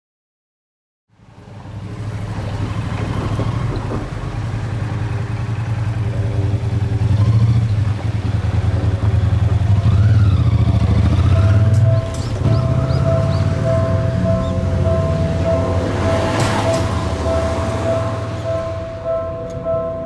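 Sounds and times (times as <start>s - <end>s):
cars driving over level crossing: 1.2s - 20.0s
engine note rising and falling: 1.4s - 20.0s.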